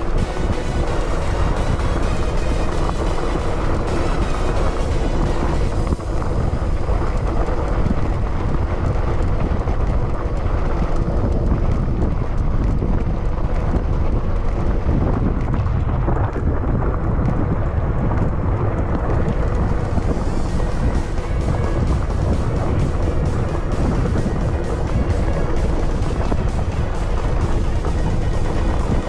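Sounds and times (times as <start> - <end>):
bike and gravel clicks and rattles: 0.0 - 29.0
tyres rumbling on dirt: 0.0 - 29.0
wind buffeting microphone: 0.0 - 29.0.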